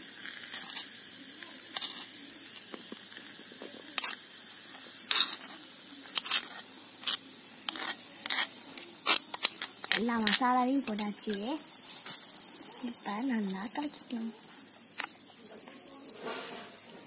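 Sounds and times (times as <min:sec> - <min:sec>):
meat sizzling in hot oil: 0:00.0 - 0:15.4
metal spoon scraping clay dish: 0:04.9 - 0:17.0.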